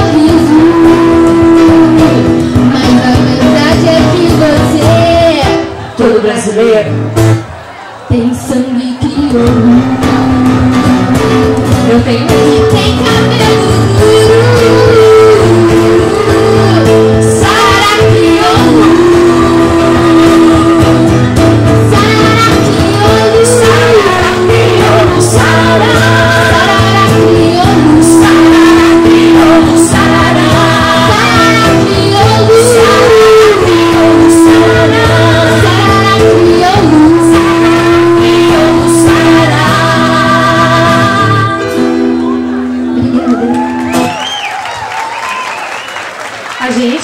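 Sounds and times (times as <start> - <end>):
woman singing into a microphone: 0.0 - 7.0, 8.1 - 42.4
instrumental accompaniment: 9.3 - 44.2.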